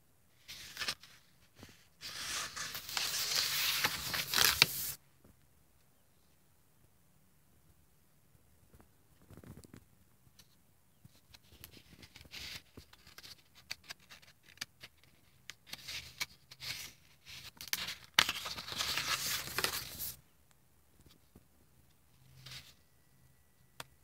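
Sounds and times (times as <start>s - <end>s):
paper rustling and crinkling: 0.4s - 5.0s, 11.3s - 20.2s
page being turned: 0.5s - 5.0s, 15.7s - 20.2s.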